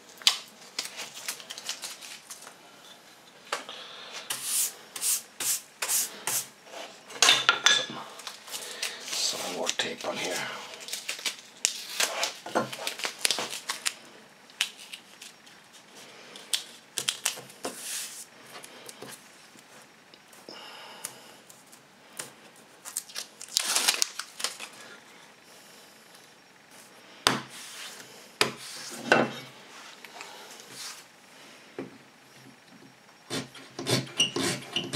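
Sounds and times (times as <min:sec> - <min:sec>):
paper backing rustling: 0:08.3 - 0:14.0, 0:22.8 - 0:24.8.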